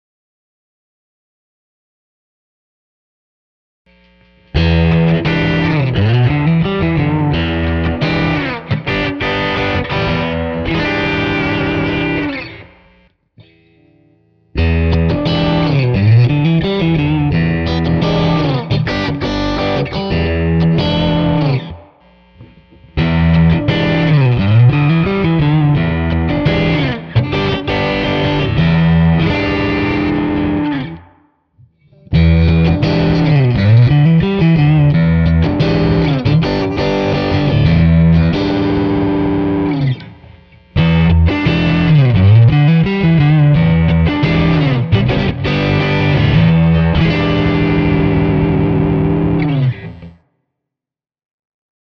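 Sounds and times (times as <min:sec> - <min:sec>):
electric guitar phrase: 0:04.5 - 0:31.3, 0:31.9 - 0:50.2.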